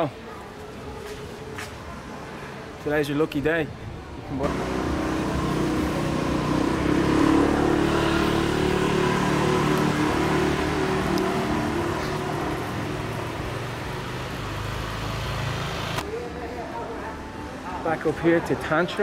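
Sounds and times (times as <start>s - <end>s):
engine humming: 4.4s - 16.0s.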